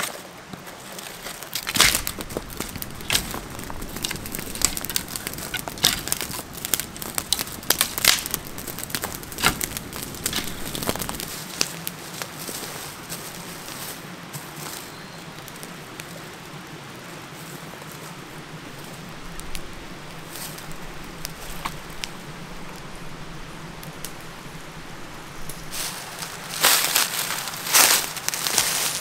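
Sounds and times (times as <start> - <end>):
loud crunching and rustling: 0.0 - 16.4, 17.4 - 29.0
stream rushing: 1.5 - 14.6.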